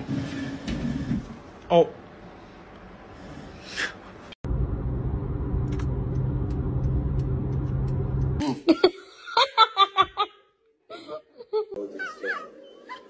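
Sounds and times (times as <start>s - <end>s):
road rumble inside car: 4.5s - 8.4s.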